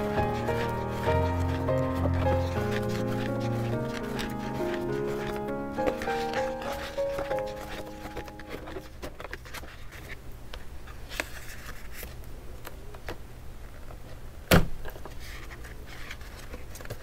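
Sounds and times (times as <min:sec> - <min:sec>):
piano music: 0:00.0 - 0:09.2
paper rustling: 0:00.0 - 0:12.2, 0:14.8 - 0:17.0.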